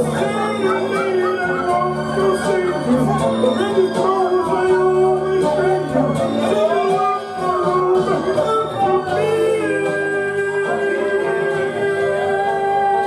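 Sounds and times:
man singing karaoke: 0.0s - 13.0s.

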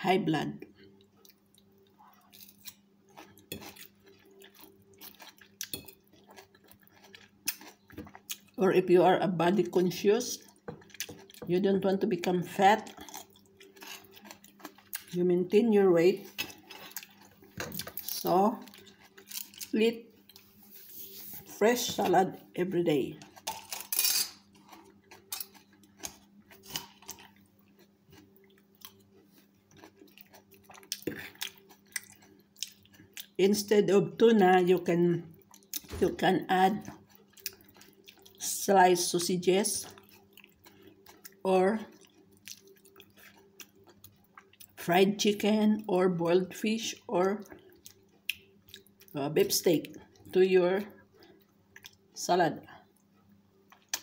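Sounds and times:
faint steady hum: 0.0s - 54.0s
soft chewing: 0.6s - 8.6s, 10.4s - 11.5s, 12.8s - 15.2s, 16.2s - 22.2s, 24.4s - 33.4s, 35.3s - 35.9s, 36.8s - 38.5s, 39.8s - 44.8s, 47.0s - 49.2s, 49.8s - 54.0s
wet squishes of salad: 1.2s - 8.6s, 39.8s - 44.8s.

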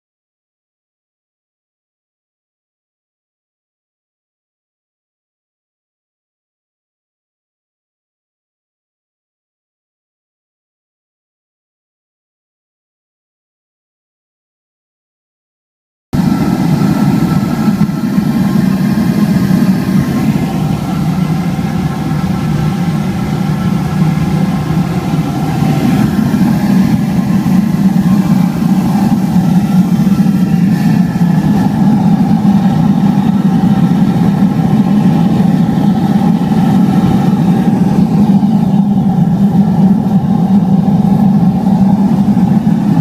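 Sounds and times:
furnace blower and flame roaring: 16.2s - 43.0s.

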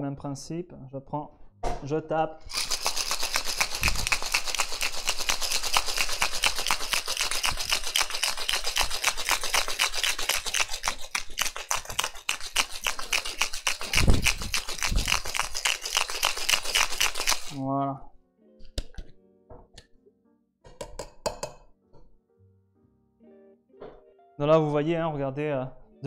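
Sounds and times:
ice rattling in cocktail shaker: 2.5s - 17.6s
shaker knock: 2.5s - 17.6s.

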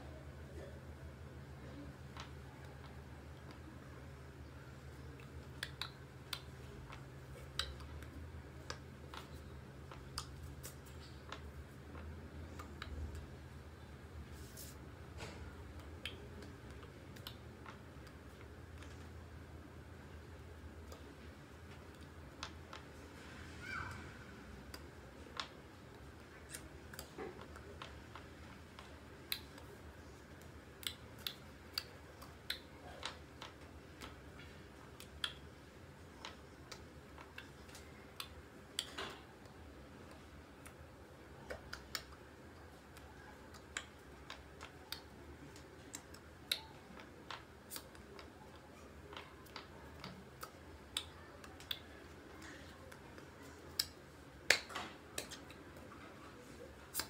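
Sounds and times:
low steady hum: 0.0s - 57.0s
faint hand and mouth clicks: 4.8s - 13.4s, 15.2s - 19.1s, 24.6s - 57.0s.

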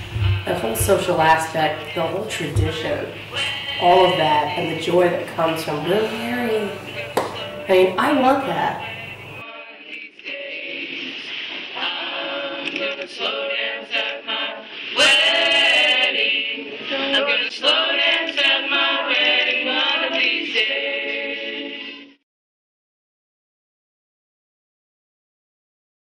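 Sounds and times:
group singing unaccompanied: 0.0s - 22.2s.

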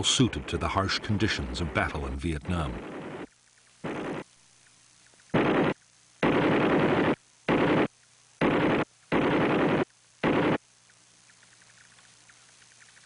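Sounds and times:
machine gun firing bursts: 2.8s - 4.3s, 5.3s - 10.6s.

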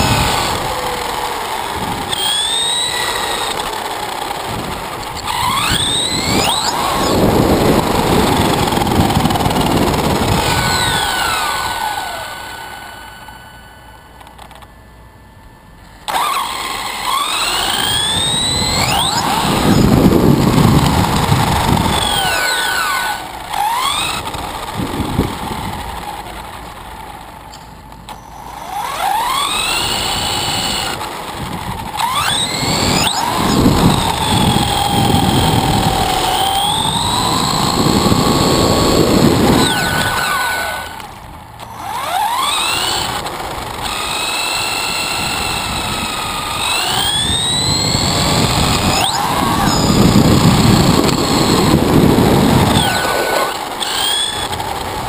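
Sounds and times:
electric motor whining: 0.0s - 15.0s, 15.7s - 55.0s
tyre noise on asphalt: 16.0s - 55.0s.

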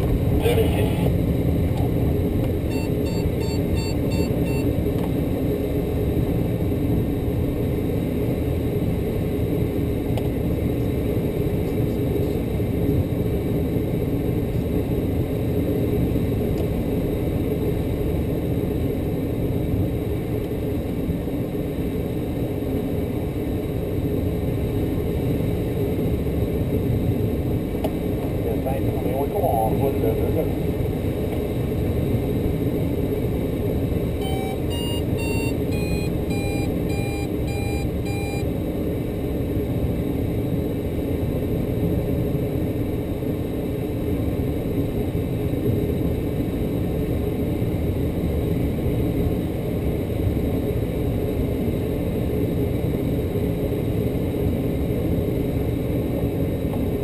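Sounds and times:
airflow rushing in cockpit: 0.0s - 57.0s
short electronic beeps: 2.7s - 4.7s, 34.2s - 38.4s.

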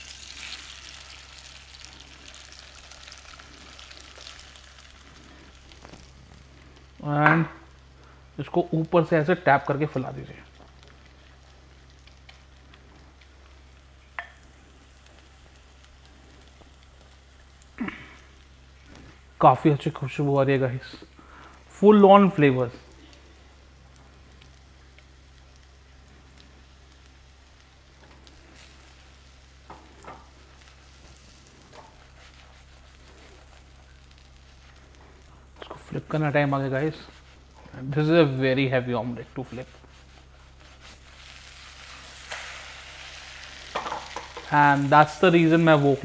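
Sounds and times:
omelette sizzling in oil: 0.0s - 46.0s.

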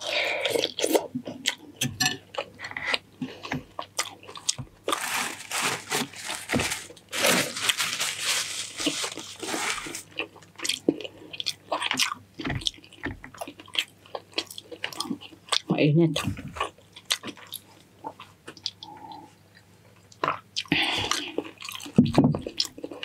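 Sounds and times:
loud crunching: 4.9s - 10.2s
chewing and biting: 10.0s - 23.0s.

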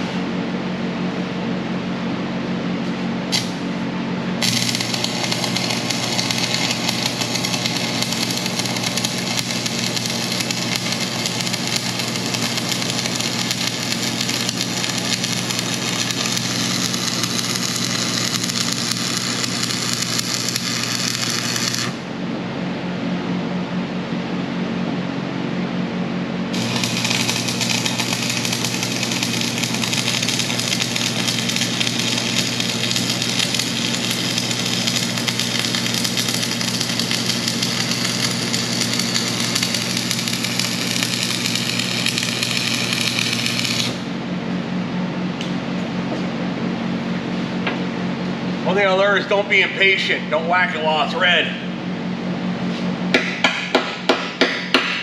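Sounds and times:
steady low hum: 0.0s - 55.0s
welding arc crackling: 3.3s - 3.6s, 4.4s - 22.0s, 26.5s - 44.1s.

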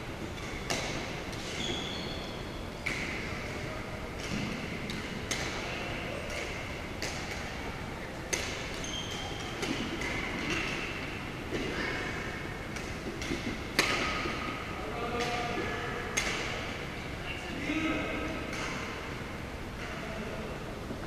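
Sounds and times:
sneakers squeaking on floor: 0.3s - 3.6s, 8.3s - 12.0s
rackets hitting shuttlecock: 0.4s - 2.0s, 2.8s - 3.4s, 4.2s - 16.8s, 18.2s - 19.2s.

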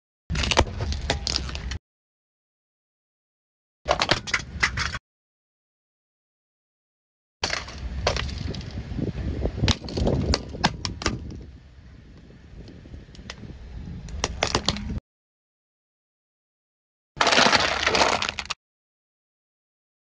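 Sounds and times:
plastic ball cracking under tyre: 9.6s - 11.4s, 14.1s - 15.0s.

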